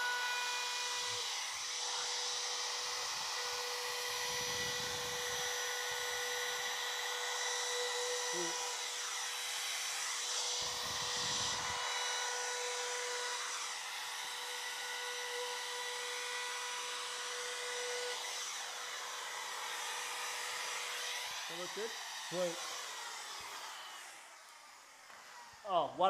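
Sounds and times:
router whining while cutting wood: 0.0 - 26.0.

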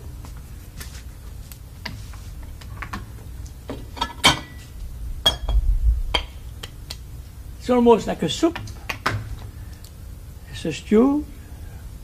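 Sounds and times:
utensils clinking against a pot: 4.0 - 4.6.

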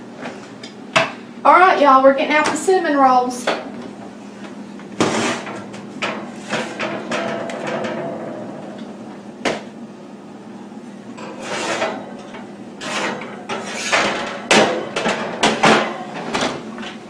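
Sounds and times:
steady low hum: 0.0 - 17.0
baking pans scraping and clattering: 5.0 - 8.9, 11.2 - 17.0
oven rack sliding: 5.0 - 8.9, 11.2 - 17.0.

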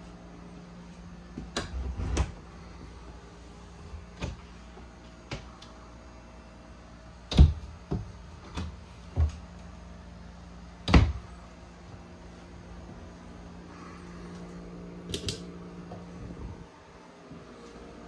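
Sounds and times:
steady low hum: 0.0 - 18.0
cabinet doors knocking and clicking: 10.8 - 11.2.

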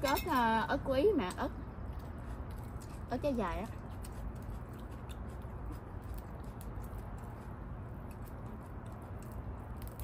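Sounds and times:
low steady hum: 0.0 - 10.0
people eating: 0.0 - 10.0.

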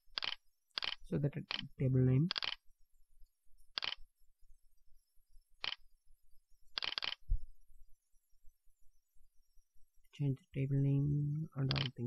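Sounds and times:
computer mouse clicks: 0.1 - 1.7, 2.3 - 2.6, 3.7 - 4.0, 5.6 - 5.8, 6.7 - 7.2, 11.7 - 12.0.

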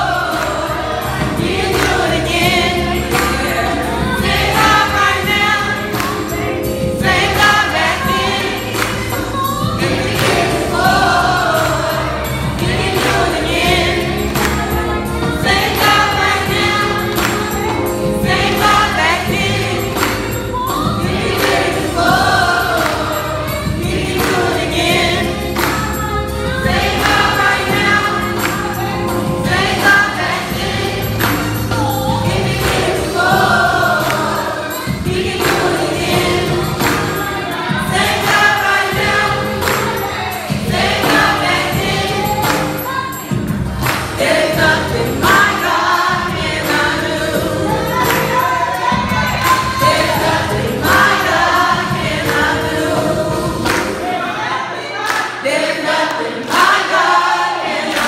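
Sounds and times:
live instrumental accompaniment: 0.0 - 54.4
gospel choir singing: 0.0 - 58.0
woman singing into microphone: 14.0 - 43.5.

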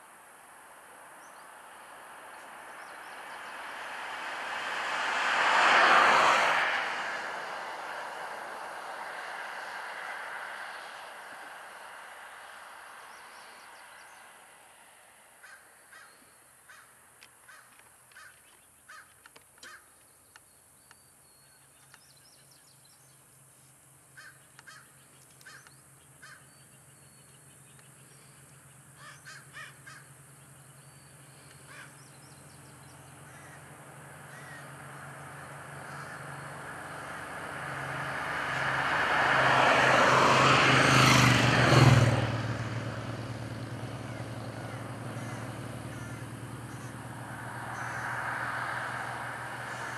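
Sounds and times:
vehicle passing on highway: 0.0 - 18.3, 23.6 - 49.9.

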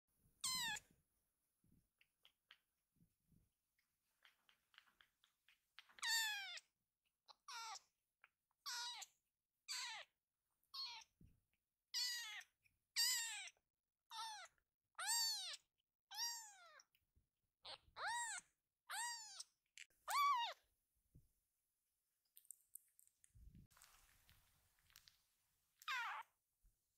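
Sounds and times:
kitten meowing: 0.4 - 0.9, 5.8 - 6.7, 7.3 - 7.9, 8.5 - 9.1, 9.7 - 10.1, 10.7 - 11.1, 11.9 - 16.8, 17.6 - 19.5, 20.1 - 20.6, 25.8 - 26.3.

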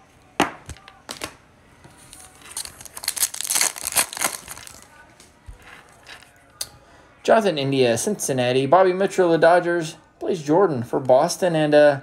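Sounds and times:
wrapper crinkling and ripping: 2.0 - 5.1.

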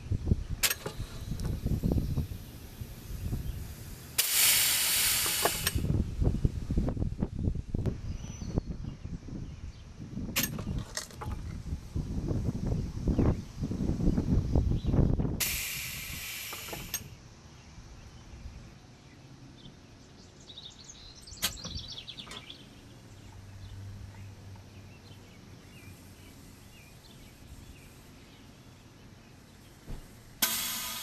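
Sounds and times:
birds chirping: 0.0 - 4.0, 16.7 - 30.4
sharp click: 0.6 - 1.6, 4.2 - 5.8, 10.4 - 10.7, 21.4 - 22.5
compressed air hissing: 0.6 - 6.0, 15.4 - 17.2, 25.6 - 28.6, 29.4 - 31.0.

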